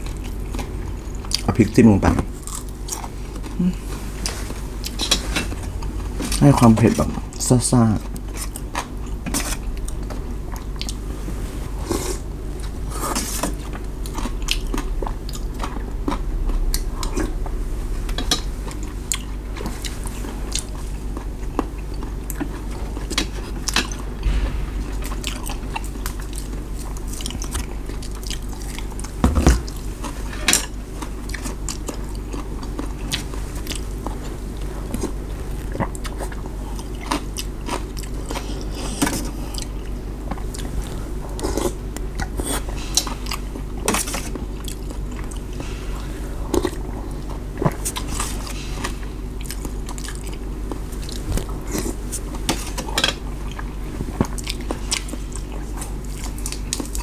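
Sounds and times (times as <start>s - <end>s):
low hum: 0.0s - 31.3s
person chewing noodles: 8.1s - 11.0s, 31.0s - 34.2s, 34.9s - 40.7s, 46.6s - 52.4s, 53.4s - 57.0s.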